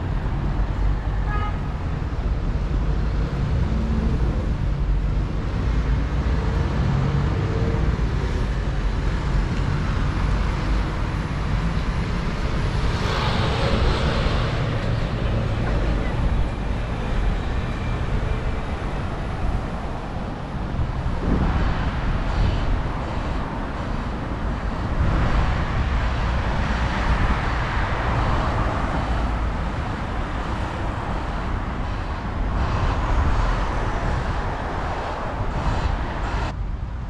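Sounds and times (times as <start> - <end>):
road traffic noise: 0.0 - 37.0.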